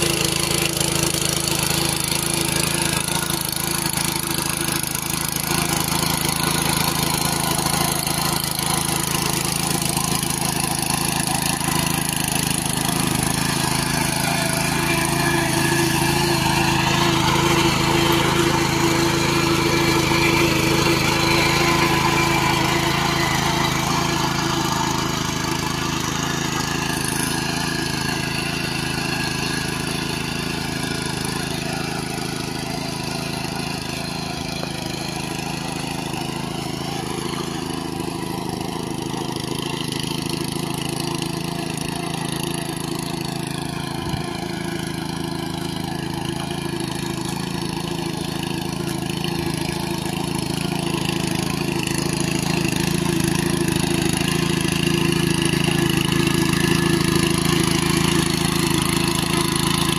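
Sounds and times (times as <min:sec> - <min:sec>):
power tiller engine running: 0:00.0 - 0:59.9
rotary blades churning mud: 0:00.0 - 0:59.9.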